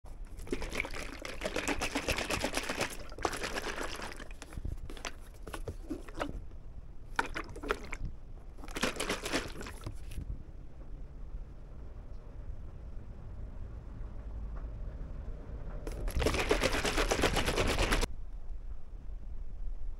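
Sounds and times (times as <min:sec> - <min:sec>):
liquid pouring with crackling: 0:00.1 - 0:06.4, 0:07.1 - 0:10.2, 0:15.9 - 0:18.1.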